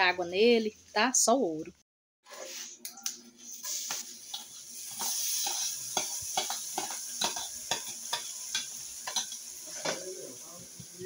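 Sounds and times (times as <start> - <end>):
oil sizzling: 2.3 - 11.0.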